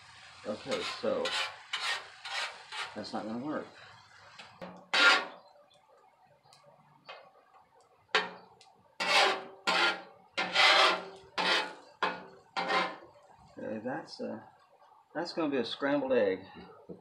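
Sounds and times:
spatula scraping metal griddle: 0:00.4 - 0:03.9, 0:04.6 - 0:05.5, 0:08.2 - 0:13.2.

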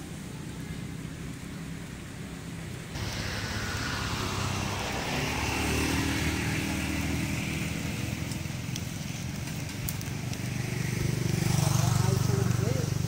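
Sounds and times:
vehicle engine running: 0:03.0 - 0:13.0
light ticks: 0:08.2 - 0:10.5.

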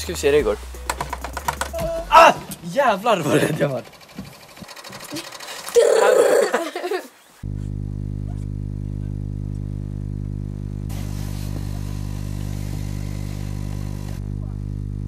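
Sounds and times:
microwave oven humming: 0:07.4 - 0:15.0.

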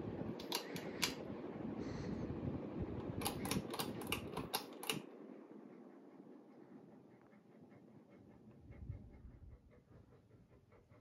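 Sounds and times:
ceiling fan humming: 0:00.0 - 0:11.0.

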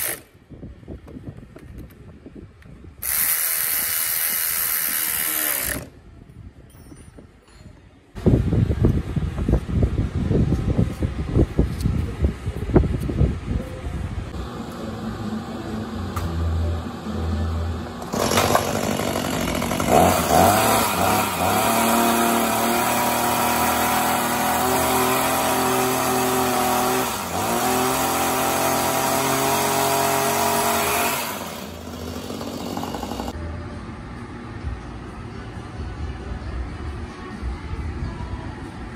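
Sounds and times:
hedge trimmer engine revving: 0:18.0 - 0:33.4.

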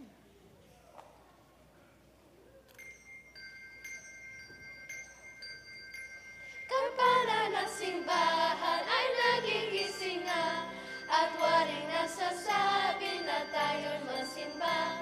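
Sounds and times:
handbells ringing: 0:02.7 - 0:15.0
children's choir singing: 0:06.7 - 0:15.0.

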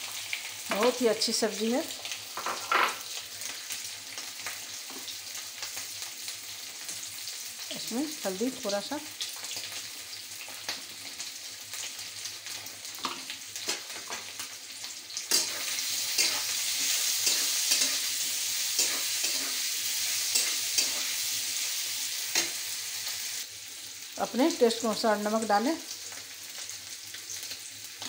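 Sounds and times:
potatoes sizzling in oil: 0:00.0 - 0:28.0
spatula scraping pan: 0:15.3 - 0:21.2.

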